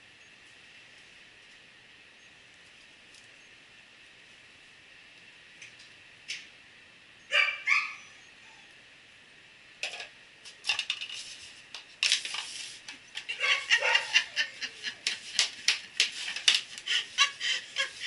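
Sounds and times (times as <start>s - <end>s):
dog barking: 7.3s - 8.1s, 13.4s - 14.2s.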